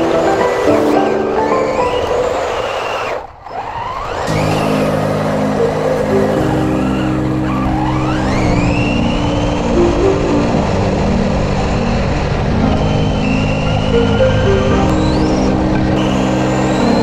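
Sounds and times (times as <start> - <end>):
background music with sustained chords: 0.0 - 2.6, 4.3 - 17.0
electric motor whining: 0.0 - 17.0.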